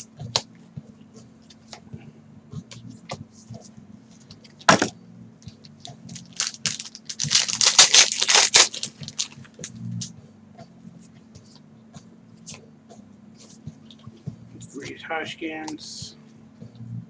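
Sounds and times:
cards rustling: 0:05.7 - 0:09.7
card pack wrapper tearing: 0:06.1 - 0:09.4.

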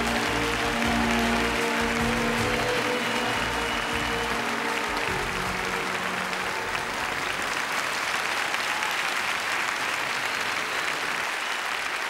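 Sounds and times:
low music notes: 0:00.0 - 0:07.8
studio audience applauding: 0:00.0 - 0:12.0.

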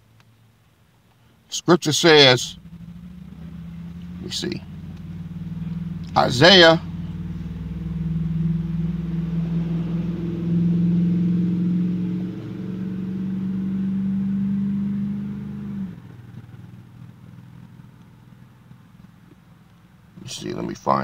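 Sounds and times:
vehicle engine idling: 0:00.0 - 0:21.0.

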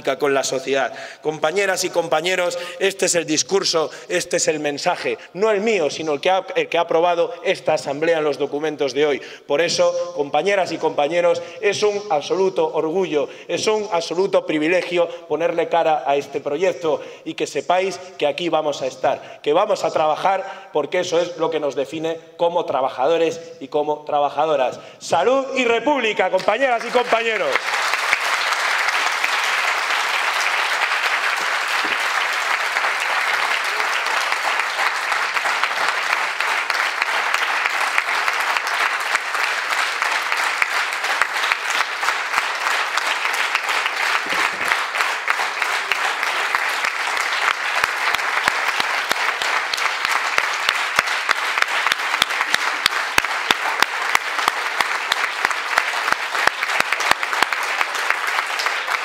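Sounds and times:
audience applauding: 0:26.4 - 0:59.0
rhythmic clapping in unison: 0:26.4 - 0:59.0.

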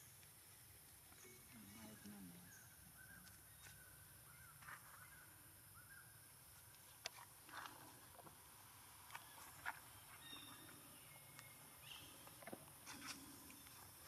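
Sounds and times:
faint short chirping calls: 0:09.1 - 0:14.0.

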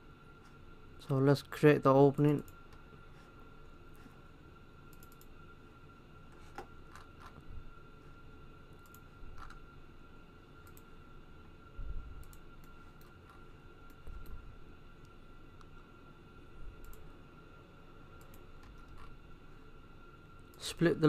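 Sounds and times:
faint high whine: 0:00.0 - 0:21.0
computer mouse clicks: 0:04.9 - 0:05.3, 0:08.8 - 0:09.6, 0:10.6 - 0:10.9, 0:12.2 - 0:14.4, 0:16.8 - 0:17.0, 0:18.2 - 0:19.2.

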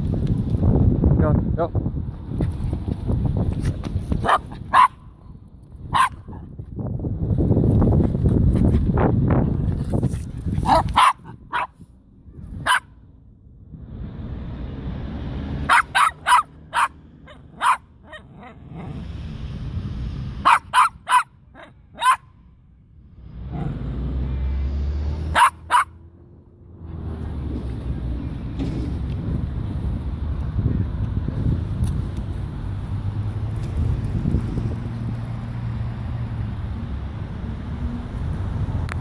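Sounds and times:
small dog barking: 0:04.2 - 0:05.0, 0:05.9 - 0:06.4, 0:10.6 - 0:11.8, 0:12.6 - 0:12.9, 0:15.6 - 0:18.6, 0:20.4 - 0:22.3, 0:25.3 - 0:26.0.

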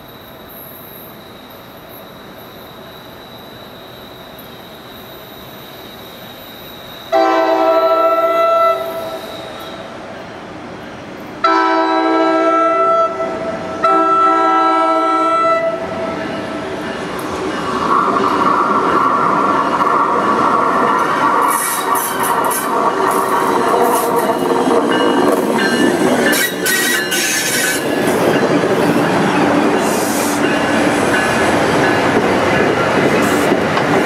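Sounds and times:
train running noise: 0:00.0 - 0:34.0
train air horn blasts: 0:07.1 - 0:09.8, 0:11.4 - 0:16.0.

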